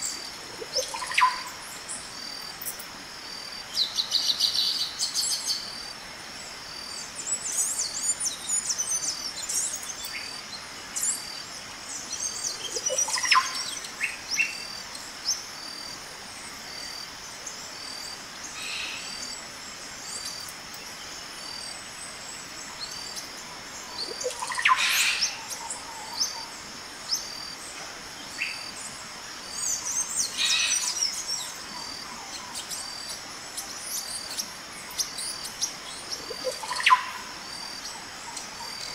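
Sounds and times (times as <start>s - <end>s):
high pulsing insect call: 0.0s - 38.9s
birds chirping and calling: 0.6s - 1.6s, 22.7s - 27.4s, 29.5s - 38.9s.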